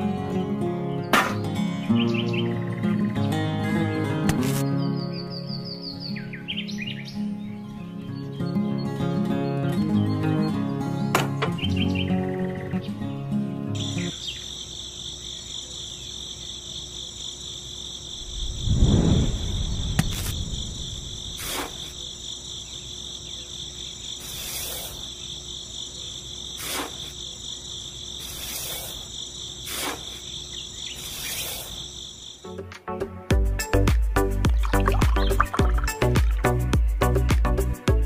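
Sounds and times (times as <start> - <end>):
crickets chirping: 11.6 - 32.7.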